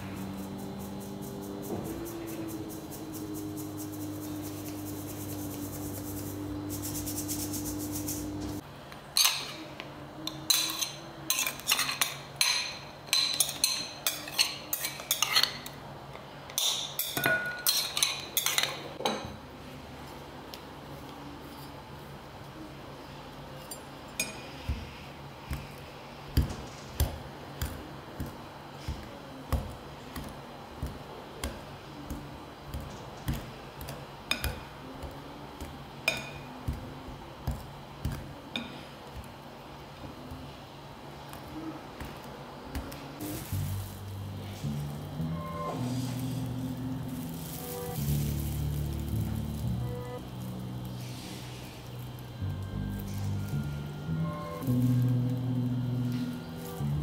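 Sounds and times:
steady hum: 0:00.0 - 0:08.8, 0:22.1 - 0:57.0
utensils and dishes clinking: 0:09.2 - 0:15.8, 0:16.5 - 0:19.4.

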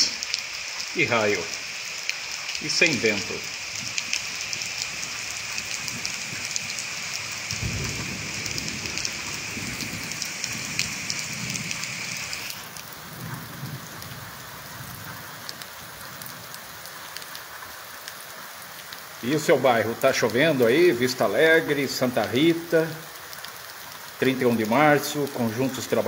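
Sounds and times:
heavy rain: 0:00.0 - 0:26.0
rain drops ticking: 0:00.0 - 0:26.0
thunder rumbling: 0:04.9 - 0:15.1.

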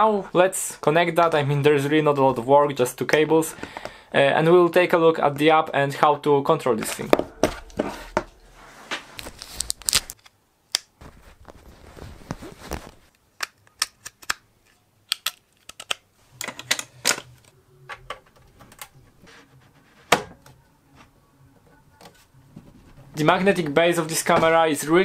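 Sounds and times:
cable rustling: 0:06.8 - 0:10.3, 0:11.0 - 0:13.2.

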